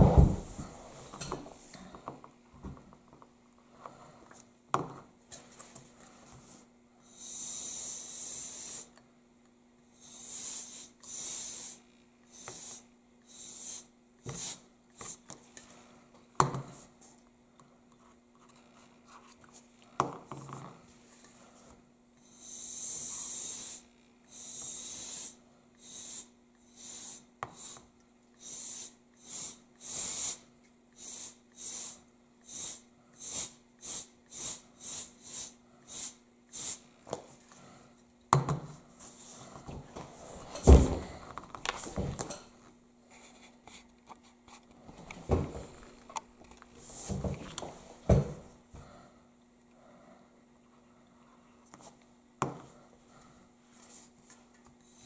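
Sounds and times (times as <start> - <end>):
loud thump: 0.0 - 0.6
compressed air hissing bursts: 7.0 - 8.9, 10.0 - 15.2, 22.2 - 27.8, 28.4 - 36.9.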